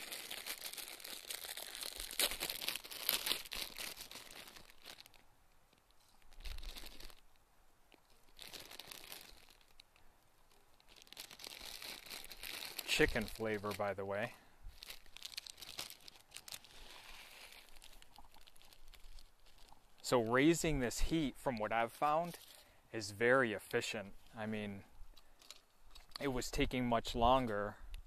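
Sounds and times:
plastic wrapper tearing and crinkling: 0:00.0 - 0:20.1, 0:25.2 - 0:26.4.

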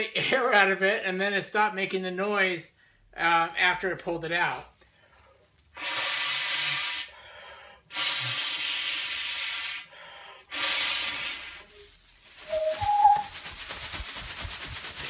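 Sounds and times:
breath blowing through plastic tube: 0:05.2 - 0:11.9, 0:12.5 - 0:13.3.

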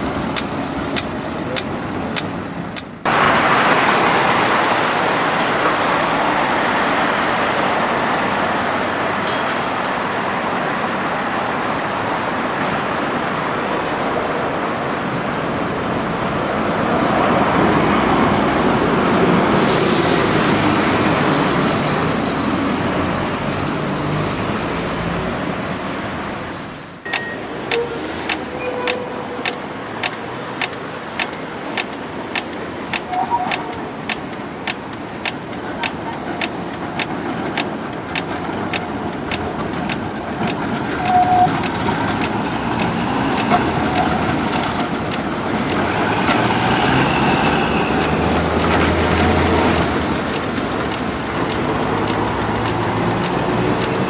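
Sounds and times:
street traffic: 0:00.0 - 0:54.0
tram wheels on rails: 0:00.0 - 0:54.0
sharp regular ticking: 0:27.1 - 0:45.9, 0:47.4 - 0:54.0.

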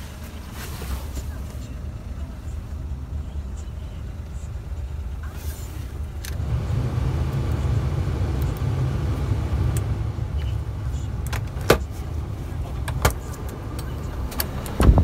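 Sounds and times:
car engine idling: 0:00.0 - 0:15.0
ventilation blower running: 0:05.9 - 0:15.0.

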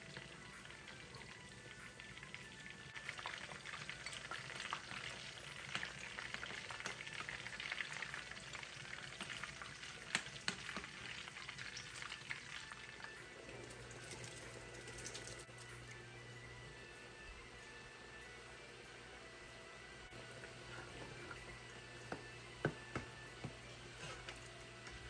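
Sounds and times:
food sizzling in hot oil: 0:00.0 - 0:15.6.

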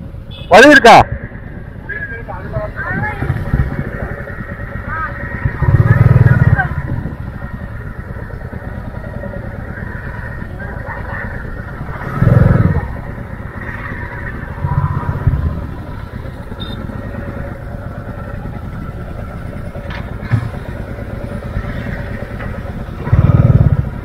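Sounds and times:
motorcycle engines idling: 0:00.0 - 0:24.0.

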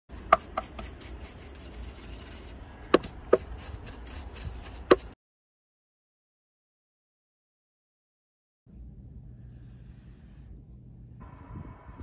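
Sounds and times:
low rumble and hiss: 0:08.7 - 0:12.0.

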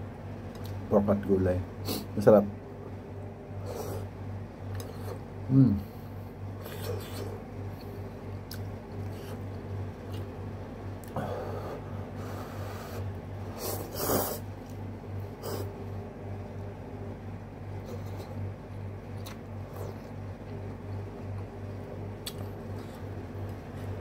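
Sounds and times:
person chewing: 0:04.7 - 0:05.2, 0:06.6 - 0:10.4, 0:19.0 - 0:24.0.

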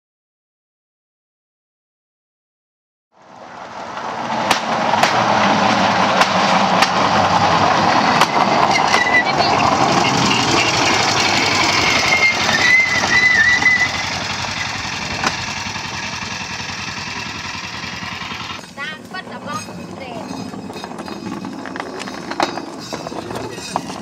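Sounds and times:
small engine running: 0:03.2 - 0:24.0
sharp clacks on rails: 0:03.8 - 0:24.0
thin high squeal: 0:08.0 - 0:15.0.

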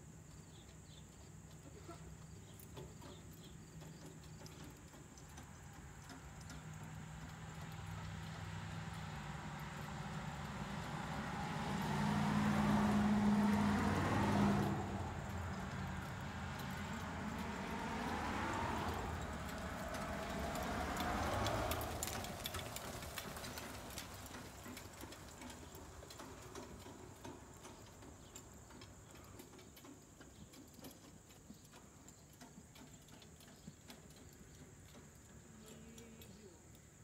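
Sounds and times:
faint ticks and clicks: 0:00.2 - 0:12.0, 0:14.6 - 0:37.0
vehicle passing by: 0:04.4 - 0:30.0.

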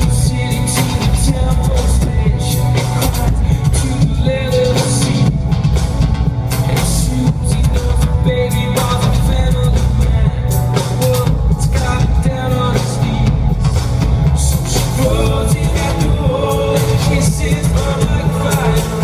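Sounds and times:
male lead vocal: 0:00.0 - 0:19.0
synth-pop band playing: 0:00.0 - 0:19.0.

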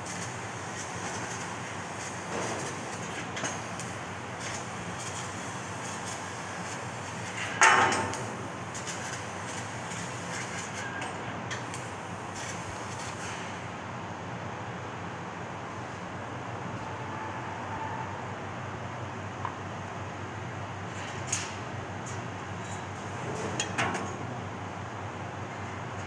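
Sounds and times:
laser cutting machine hiss and hum: 0:00.0 - 0:13.8.

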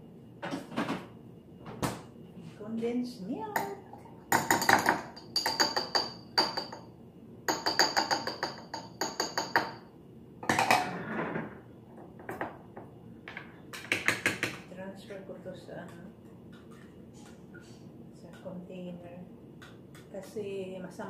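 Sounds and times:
spoon tapping glass: 0:04.4 - 0:06.9, 0:07.5 - 0:09.8.

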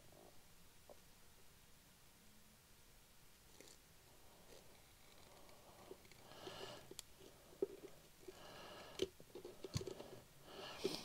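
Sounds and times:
soft breathing: 0:03.6 - 0:11.0.

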